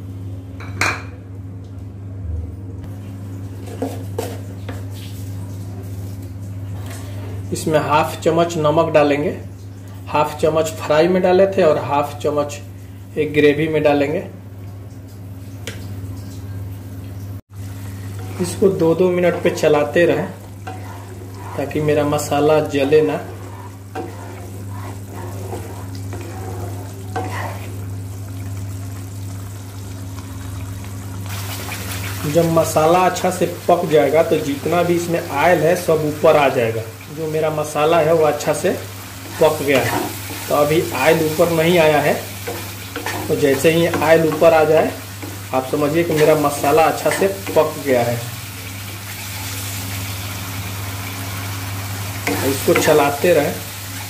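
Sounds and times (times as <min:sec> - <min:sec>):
gravy bubbling and sizzling: 0:14.4 - 0:54.0
steady low hum: 0:17.6 - 0:31.3
wooden spatula scraping pan: 0:20.4 - 0:27.8, 0:39.2 - 0:40.6, 0:41.2 - 0:45.4, 0:52.3 - 0:53.0.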